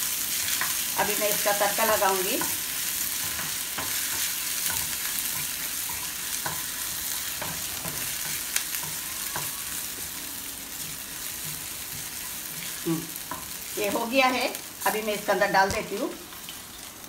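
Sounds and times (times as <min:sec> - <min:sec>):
aromatics sizzling in hot oil: 0:00.0 - 0:17.0
spatula scraping and tapping pan: 0:03.2 - 0:10.1.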